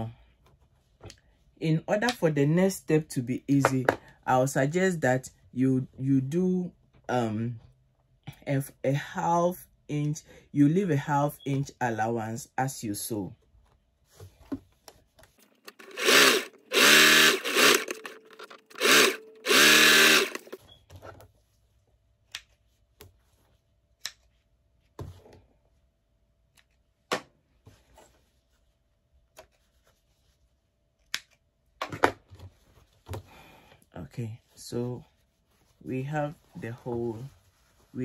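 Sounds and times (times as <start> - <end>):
sewing machine motor whining: 15.7 - 20.6.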